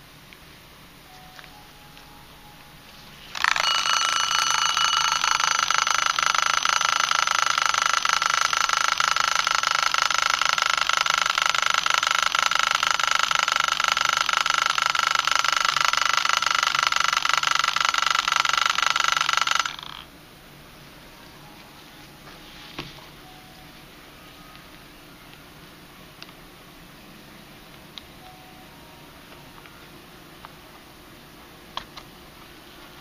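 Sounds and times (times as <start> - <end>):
alarm clock buzzing ring: 3.1 - 20.1.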